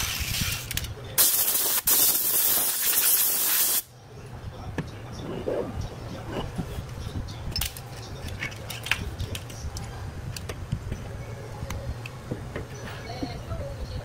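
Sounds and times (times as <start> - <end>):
steady low hum: 3.9 - 14.0.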